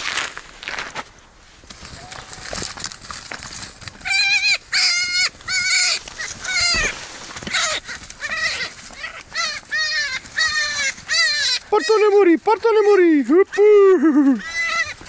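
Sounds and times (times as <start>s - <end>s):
animal calling: 4.0s - 15.0s.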